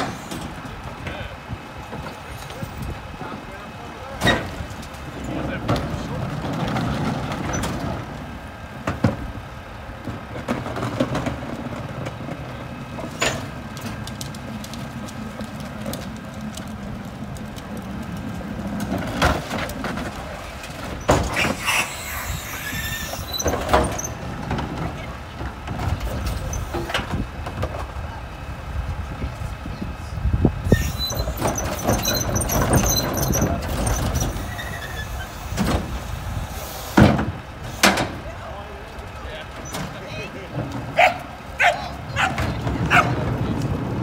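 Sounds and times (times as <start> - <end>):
trash carts banging: 0.0 - 29.1, 30.6 - 44.0
garbage truck engine running: 0.0 - 44.0
brief high squeal: 21.4 - 23.5, 30.7 - 32.3, 34.0 - 35.3.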